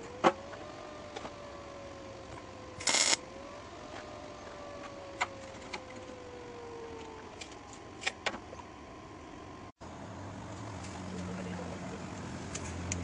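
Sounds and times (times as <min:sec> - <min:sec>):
faint falling whine: 0:00.0 - 0:09.7.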